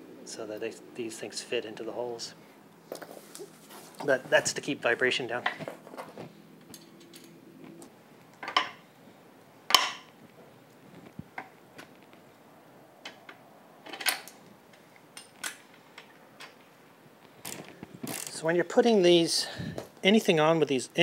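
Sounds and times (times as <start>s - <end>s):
metal parts and tools clinking: 5.4s - 7.4s.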